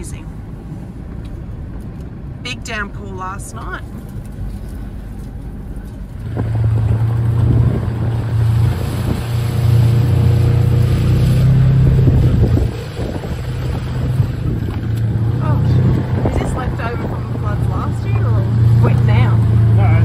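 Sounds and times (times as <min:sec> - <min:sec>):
vehicle engine running: 0:00.0 - 0:20.0
wind noise on microphone: 0:03.9 - 0:19.4.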